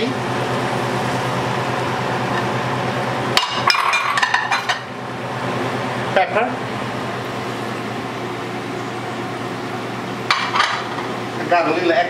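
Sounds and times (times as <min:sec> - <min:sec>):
steady low hum: 0:00.0 - 0:12.0
plate clinking against metal pot: 0:03.4 - 0:04.8.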